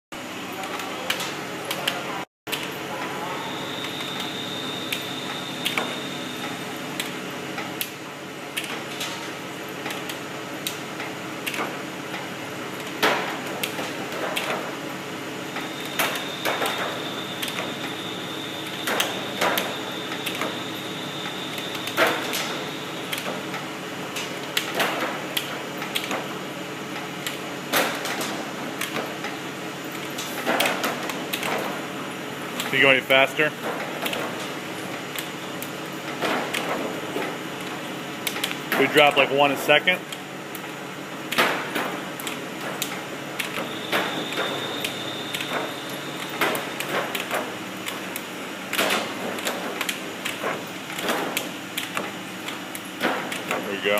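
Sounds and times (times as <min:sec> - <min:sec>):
machine hum: 0:00.2 - 0:53.9
thin high whine: 0:02.8 - 0:06.8, 0:43.6 - 0:46.3.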